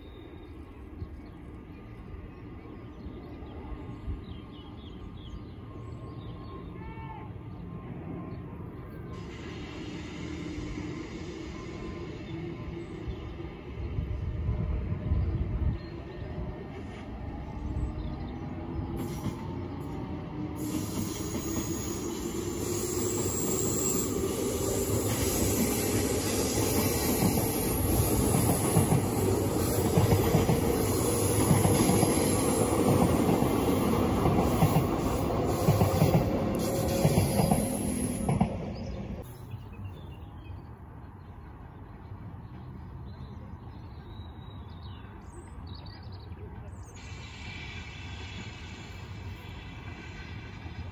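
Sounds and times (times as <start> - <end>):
electric train passing: 7.4 - 39.4, 47.0 - 50.9.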